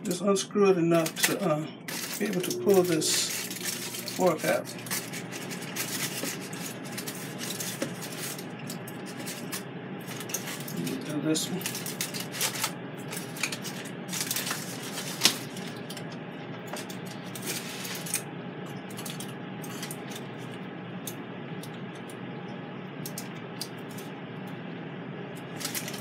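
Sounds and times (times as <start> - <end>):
aluminium foil crinkling: 0.9 - 20.6, 25.4 - 26.0.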